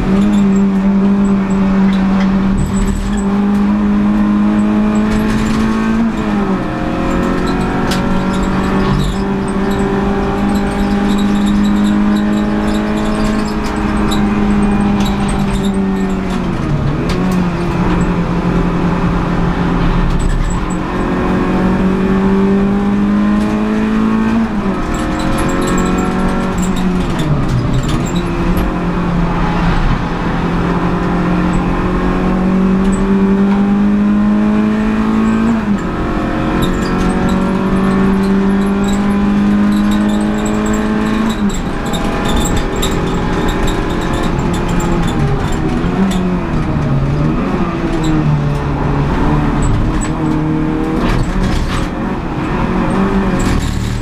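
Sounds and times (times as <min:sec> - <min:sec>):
car engine revving hard: 0:00.0 - 0:54.0.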